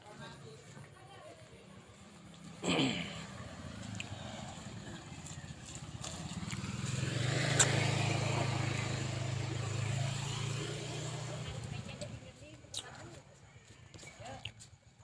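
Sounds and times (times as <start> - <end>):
motorcycle engine running: 1.8 - 12.6.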